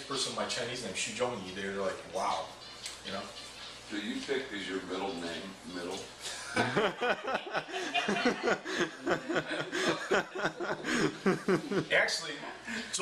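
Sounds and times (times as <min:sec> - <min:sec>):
person laughing: 0:06.3 - 0:11.8.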